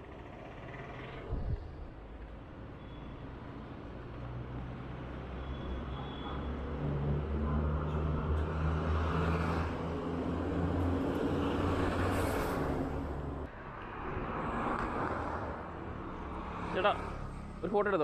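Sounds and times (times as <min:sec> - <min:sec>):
road noise: 0:00.0 - 0:18.0
bus diesel engine passing: 0:06.2 - 0:13.5.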